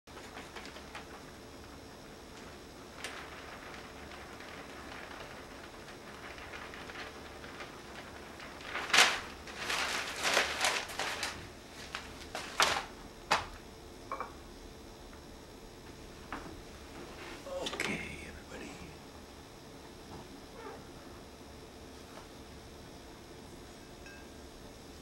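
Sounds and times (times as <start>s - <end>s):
newspaper rustling and crinkling: 0.1s - 13.6s.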